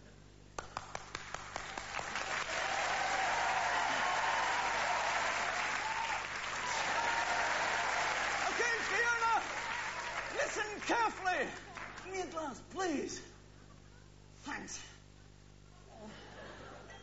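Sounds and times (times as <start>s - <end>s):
audience applause: 0.6s - 12.4s.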